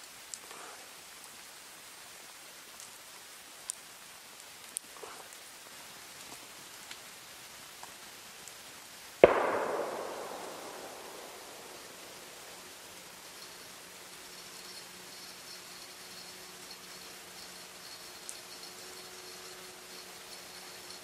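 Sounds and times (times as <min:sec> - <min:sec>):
campfire crackling: 0:00.0 - 0:21.0
loud crack: 0:09.2 - 0:12.9.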